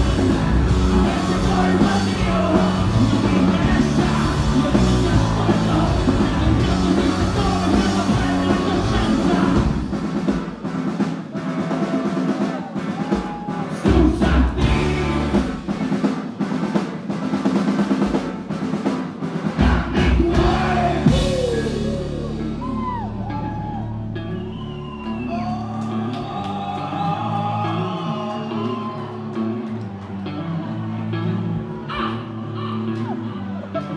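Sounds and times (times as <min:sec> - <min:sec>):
rock band playing loudly: 0:00.0 - 0:33.9
drum hits: 0:16.9 - 0:22.2.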